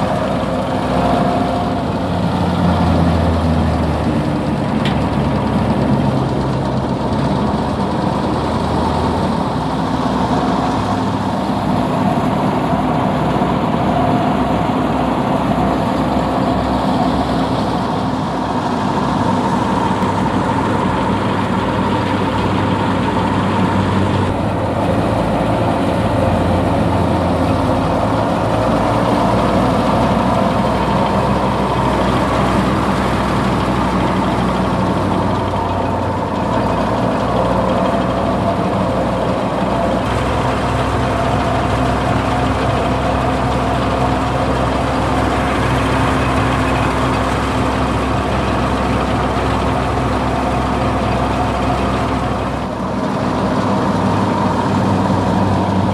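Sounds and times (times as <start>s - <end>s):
tractor engine running: 0.0s - 55.9s.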